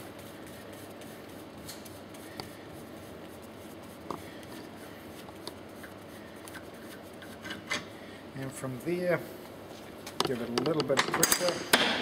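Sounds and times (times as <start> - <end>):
faint rubbing and handling: 0.0 - 7.7.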